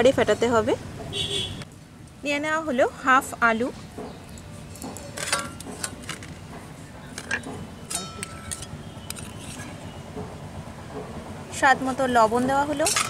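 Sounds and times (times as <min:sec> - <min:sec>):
clinks against metal bowl: 0:04.4 - 0:06.0, 0:07.2 - 0:09.8, 0:12.7 - 0:13.0.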